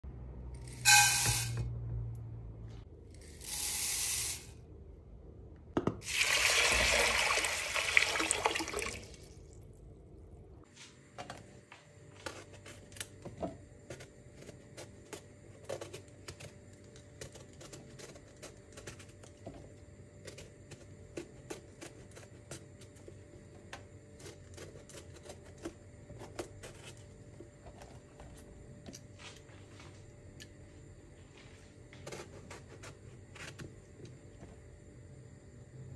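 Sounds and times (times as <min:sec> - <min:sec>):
tap water running: 0:06.0 - 0:09.5
knife scraping eggplant skin: 0:13.8 - 0:19.4, 0:20.2 - 0:27.9, 0:32.0 - 0:33.8.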